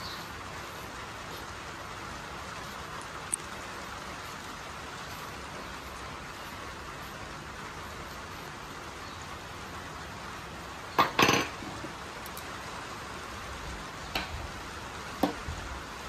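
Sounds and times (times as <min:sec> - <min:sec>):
steady hiss: 0:00.0 - 0:16.0
metal parts clanking on metal bench: 0:11.0 - 0:11.7.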